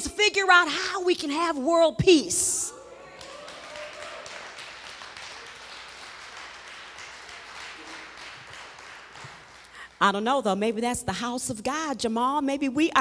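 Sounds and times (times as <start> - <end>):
congregation applauding: 3.0 - 10.0.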